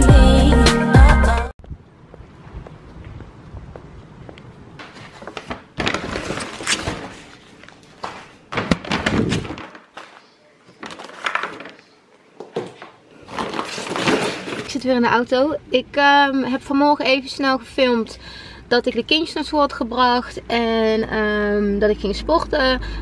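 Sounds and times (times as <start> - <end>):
paper bag rustling: 4.8 - 12.0, 12.7 - 14.8.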